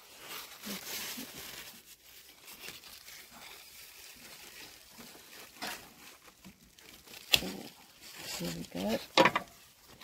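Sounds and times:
leaves and vines rustling: 0.0s - 10.0s.

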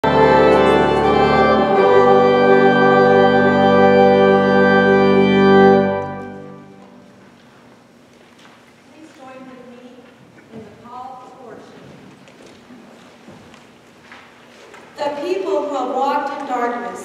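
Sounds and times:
church organ chords: 0.0s - 7.2s.

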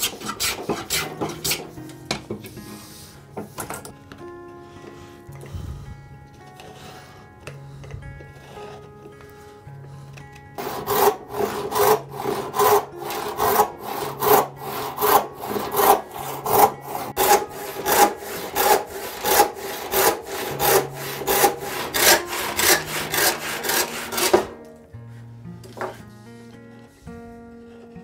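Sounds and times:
hand saw cutting wood: 0.0s - 2.8s, 10.6s - 24.8s.

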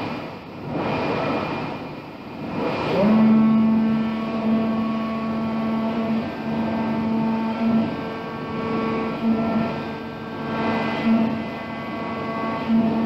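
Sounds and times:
cutting plotter head moving: 2.5s - 13.0s
oscillating knife humming: 2.6s - 13.0s.

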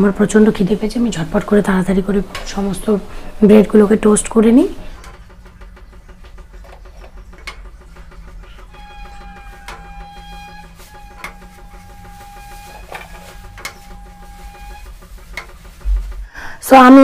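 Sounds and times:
steady pitched tone: 8.4s - 15.1s.

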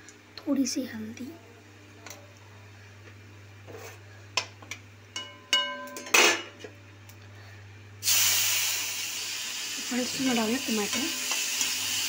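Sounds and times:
faint steady hum: 0.0s - 12.0s
metal utensils knocking on pan: 5.2s - 6.6s.

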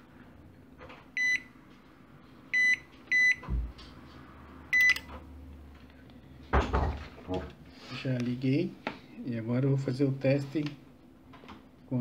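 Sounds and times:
microwave high beeps: 1.2s - 1.5s, 2.5s - 3.4s, 4.7s - 5.0s.

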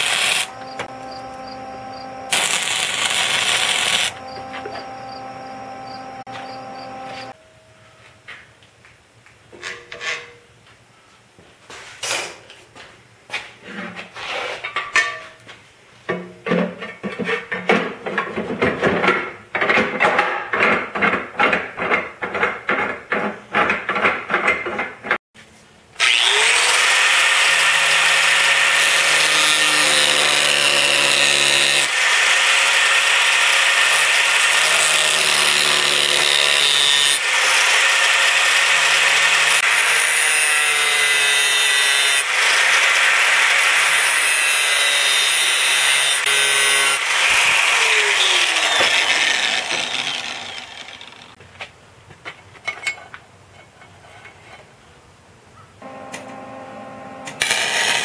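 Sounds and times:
angle grinder grinding steel: 0.0s - 7.4s, 26.0s - 51.4s, 55.8s - 58.0s.

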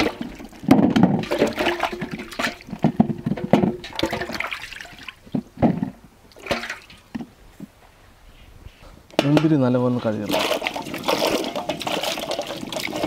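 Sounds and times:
water splashing and sloshing: 0.0s - 7.3s, 10.2s - 13.0s.

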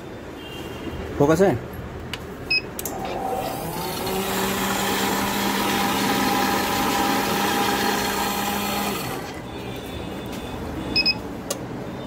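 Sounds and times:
vending machine motor humming: 2.8s - 9.4s.

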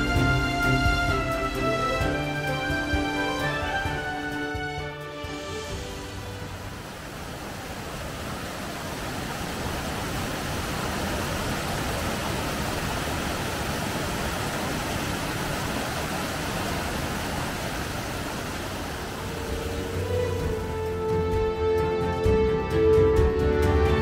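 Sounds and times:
waterfall roaring: 0.0s - 21.6s.

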